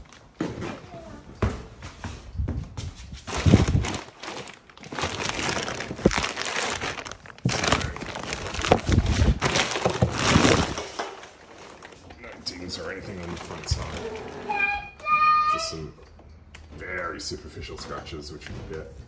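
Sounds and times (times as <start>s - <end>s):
padded bag crinkling and rustling: 3.3s - 14.5s.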